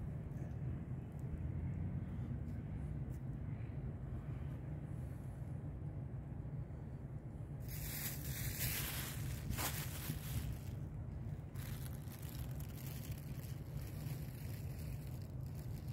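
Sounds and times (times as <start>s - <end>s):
wind rumble on microphone: 0.0s - 15.9s
cat crunching dry kibble: 11.5s - 15.9s.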